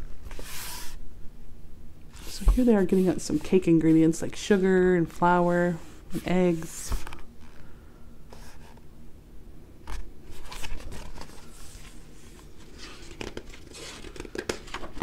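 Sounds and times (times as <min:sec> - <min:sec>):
book pages rustling: 0:00.2 - 0:01.0, 0:02.1 - 0:03.7, 0:09.9 - 0:15.0.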